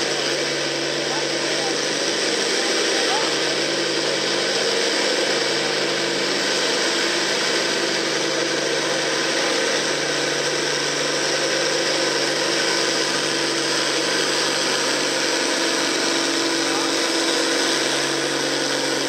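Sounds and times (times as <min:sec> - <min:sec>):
diesel tractor engine under load: 0:00.0 - 0:19.0.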